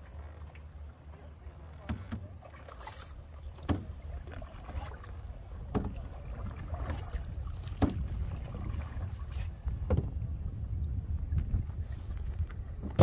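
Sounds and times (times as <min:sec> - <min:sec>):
paddle splash and knock: 0:00.1 - 0:11.6, 0:12.3 - 0:13.0
steady low rumble: 0:03.3 - 0:13.0.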